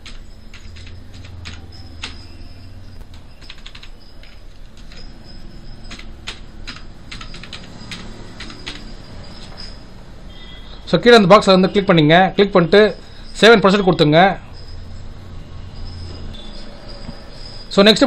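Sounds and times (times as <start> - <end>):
keyboard typing: 0.0 - 9.9.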